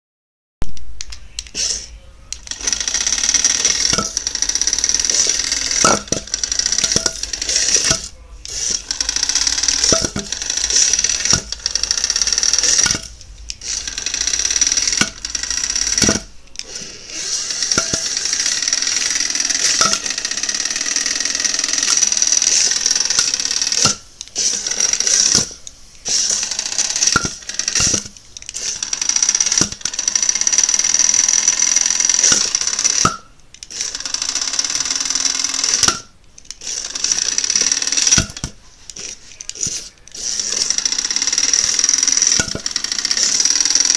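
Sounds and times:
small electric motor whining: 1.5s - 43.9s.

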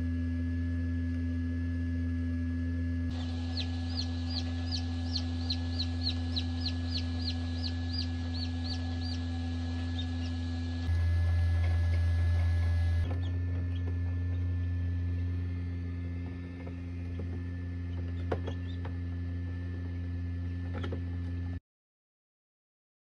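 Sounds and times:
incubator fan humming: 0.0s - 21.6s
chicks peeping: 3.1s - 14.5s, 17.9s - 18.9s.

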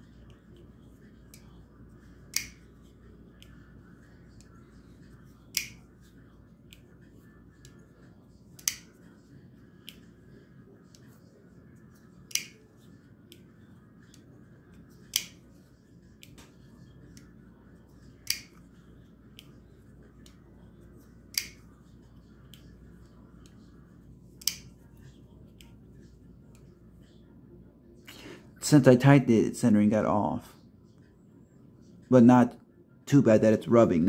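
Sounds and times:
knife closing clicks: 2.3s - 2.6s, 5.5s - 5.8s, 12.3s - 12.6s.

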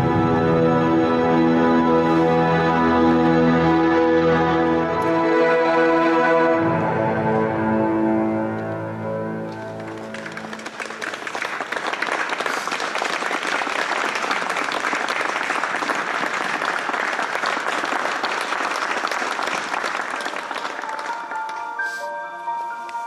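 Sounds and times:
held music notes: 0.0s - 11.0s, 20.4s - 23.0s
audience applauding: 9.4s - 21.9s.

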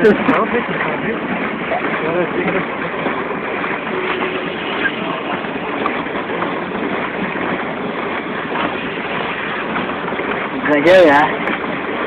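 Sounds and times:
water rushing around boat: 0.0s - 12.0s
wind: 0.0s - 12.0s.

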